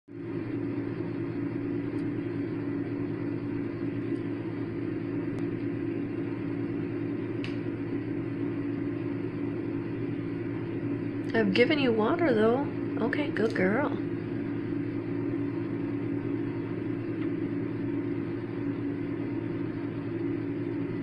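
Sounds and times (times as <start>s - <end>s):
motor hum: 0.1s - 21.0s.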